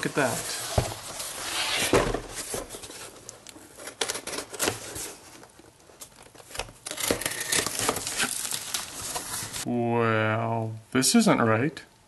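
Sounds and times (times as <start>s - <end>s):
rustling and tearing: 0.5s - 9.6s
packing tape pulled open: 6.8s - 9.6s.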